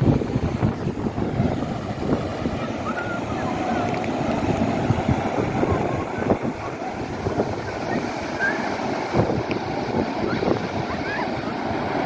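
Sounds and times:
ocean surf breaking: 0.0s - 12.0s
wind buffeting microphone: 0.0s - 12.0s.

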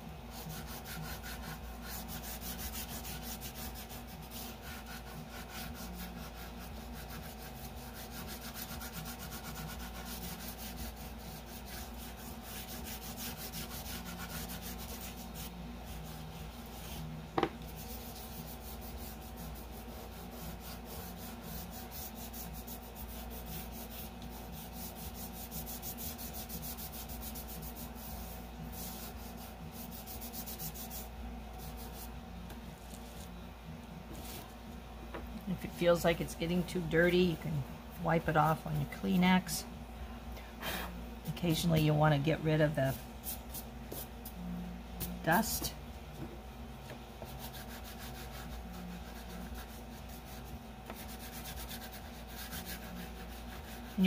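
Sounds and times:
chalk pastel scratching on paper: 0.3s - 17.1s, 17.7s - 32.2s, 41.3s - 44.2s, 47.2s - 54.0s.

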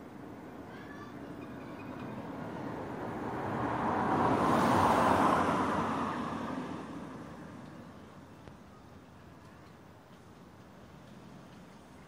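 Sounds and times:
car passing by: 1.8s - 8.3s.

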